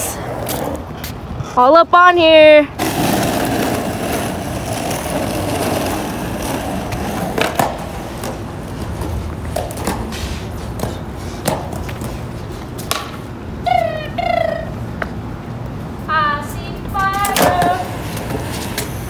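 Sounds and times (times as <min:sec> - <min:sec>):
skateboard wheels rolling on asphalt: 0:00.0 - 0:19.0
sharp skateboard knocks: 0:12.8 - 0:13.2.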